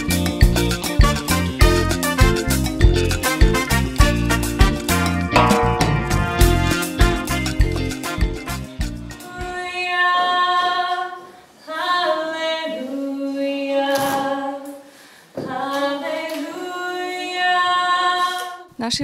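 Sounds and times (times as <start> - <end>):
group singing unaccompanied: 9.2 - 14.8, 15.4 - 18.7.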